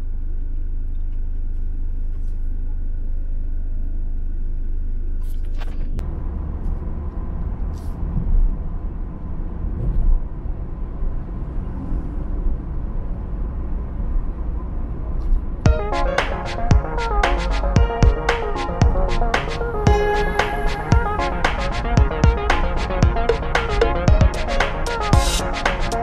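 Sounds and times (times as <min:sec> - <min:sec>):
car driving along road: 0:00.5 - 0:15.6.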